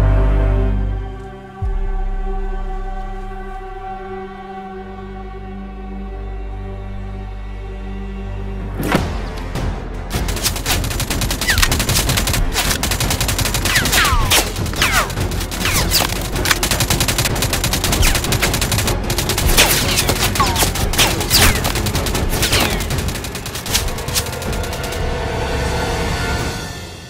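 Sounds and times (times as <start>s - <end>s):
rapid gunfire: 10.1s - 25.4s.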